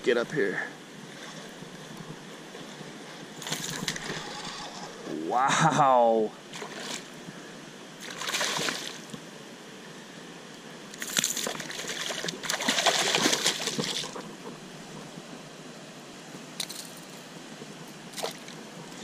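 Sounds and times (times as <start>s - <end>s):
fish splashing in water: 8.0s - 9.1s, 11.0s - 14.3s.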